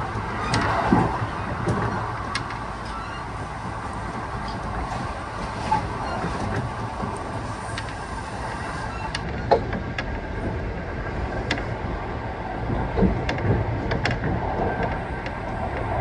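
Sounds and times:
train wheels rumbling on rails: 0.0s - 16.0s.

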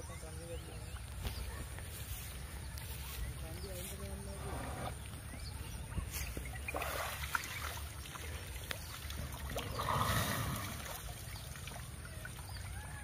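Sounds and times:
elephant splashing water: 6.4s - 13.0s
water pouring into river: 6.6s - 12.8s.

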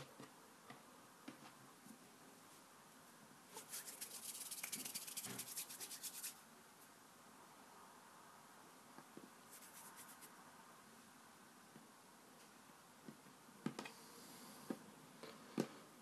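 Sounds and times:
hands rubbing scratchy rustling: 3.6s - 6.4s, 9.5s - 10.3s.

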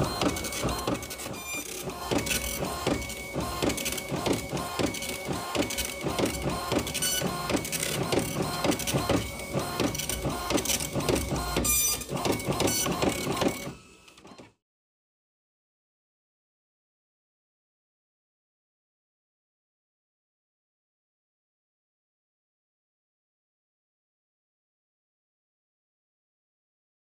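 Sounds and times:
printer head buzzing: 0.0s - 14.3s.

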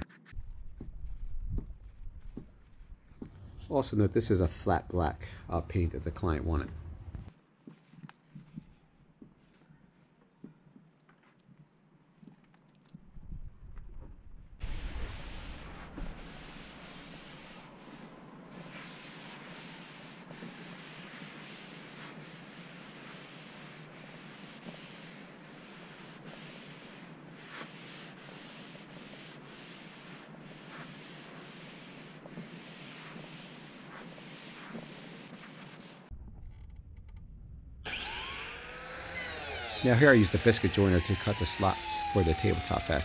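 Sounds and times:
cloth rubbing on wood: 14.6s - 36.1s.

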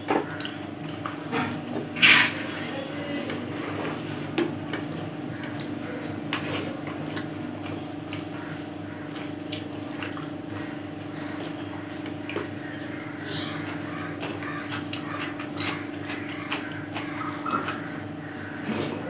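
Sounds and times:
steady low hum: 0.0s - 19.0s
wet chewing and mouth smacks: 0.3s - 1.6s, 5.4s - 8.4s, 9.1s - 10.8s.

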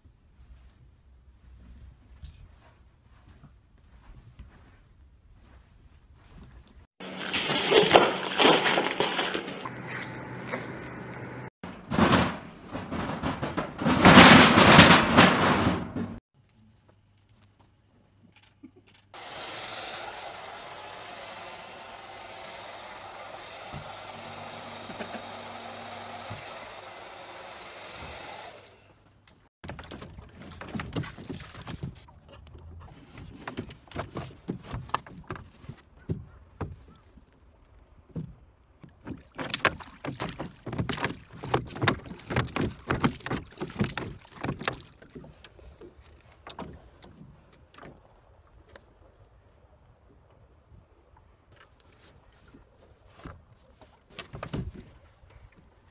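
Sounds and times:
oars clunking in oarlocks: 7.0s - 11.5s, 29.6s - 49.0s, 51.5s - 55.9s
oars dipping into water: 7.0s - 11.5s, 19.8s - 28.9s, 29.7s - 49.2s.

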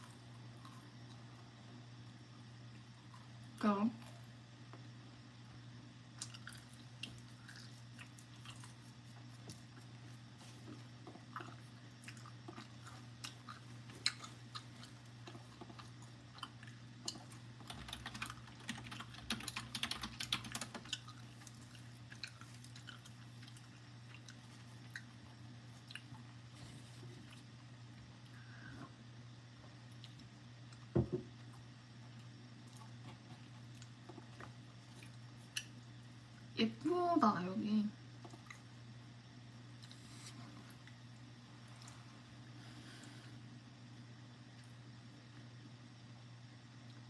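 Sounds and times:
chewing crunchy snack: 6.1s - 26.5s, 29.9s - 36.5s.

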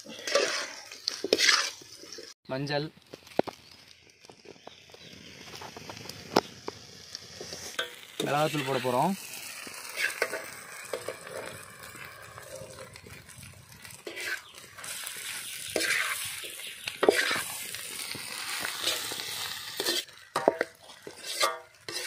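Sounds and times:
metal ladle stirring and scraping: 0.0s - 2.4s, 7.3s - 12.8s, 13.8s - 17.7s, 18.3s - 22.0s
low sizzle of frying: 0.0s - 22.0s.

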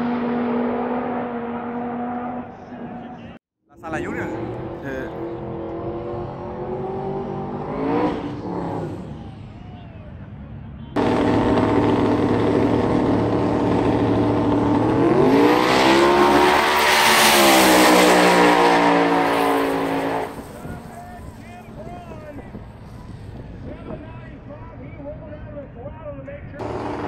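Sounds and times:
second drag car: 0.0s - 27.0s
drag car engine revving: 11.0s - 21.6s, 26.6s - 27.0s.

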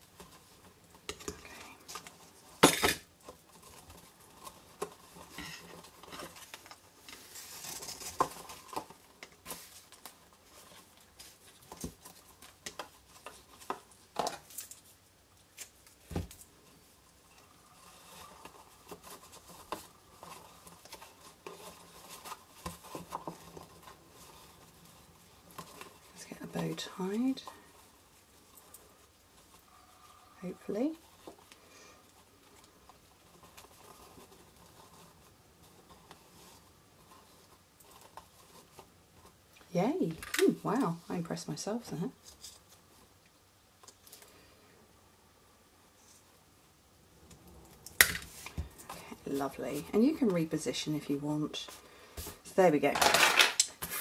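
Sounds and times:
ribbon and card rustling: 0.0s - 43.2s, 48.0s - 54.0s.

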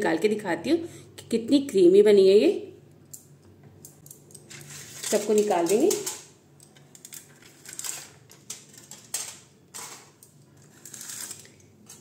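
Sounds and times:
aluminium foil crinkling: 4.3s - 12.0s.

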